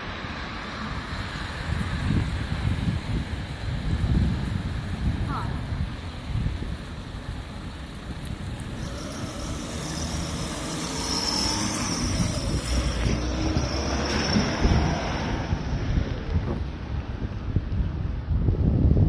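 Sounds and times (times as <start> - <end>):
tyres hissing on wet road: 0.0 - 17.4
traffic passing: 0.0 - 18.7
wind rumble on microphone: 0.0 - 19.0.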